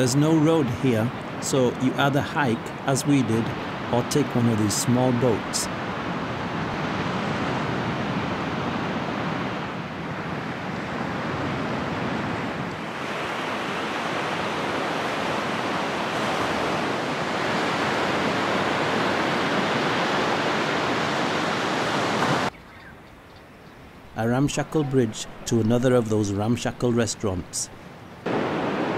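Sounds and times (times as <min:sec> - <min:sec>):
waves breaking on beach: 0:00.0 - 0:22.5, 0:27.3 - 0:28.9.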